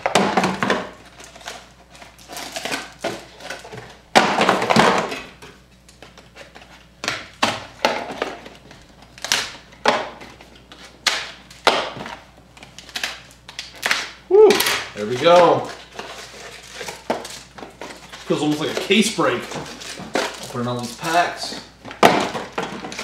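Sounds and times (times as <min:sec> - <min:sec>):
scissors cutting packs: 0:12.8 - 0:21.6
packaging rustling: 0:14.6 - 0:23.0.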